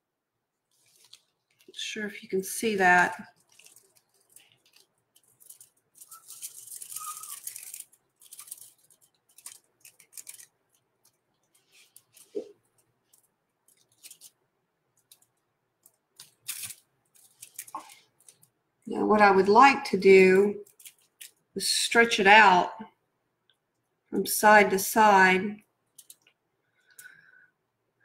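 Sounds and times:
objects rustling: 0.7 - 1.9, 2.9 - 18.6.

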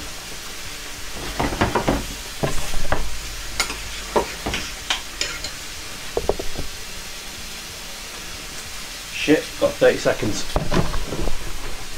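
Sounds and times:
food sizzling: 0.0 - 11.9
utensil scraping in a pan: 1.0 - 7.2.

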